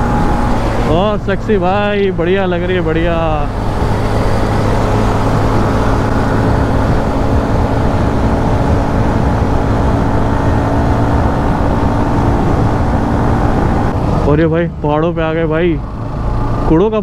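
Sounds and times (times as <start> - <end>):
motorcycle engine cruising: 0.0 - 17.0
wind and road noise: 0.0 - 17.0.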